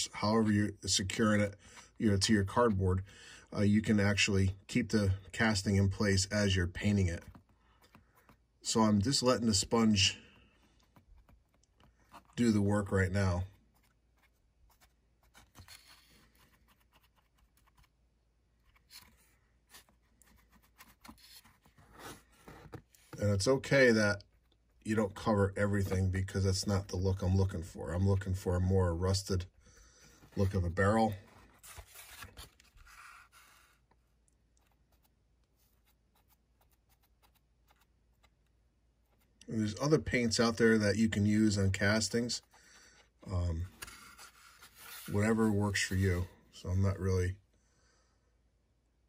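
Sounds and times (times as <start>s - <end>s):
soft rustle: 10.0s - 23.3s, 30.0s - 39.5s, 41.8s - 46.4s.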